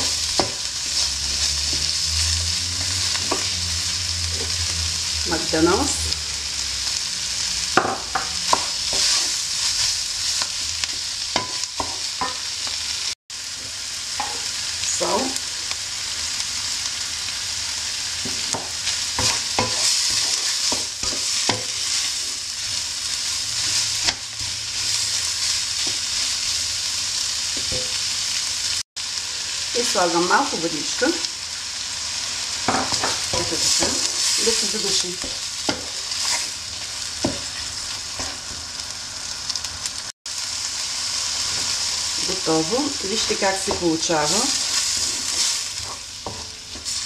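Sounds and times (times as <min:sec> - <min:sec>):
food sizzling in frying pan: 0:00.0 - 0:47.0
wooden spoon scraping pan: 0:32.9 - 0:36.6, 0:44.1 - 0:47.0.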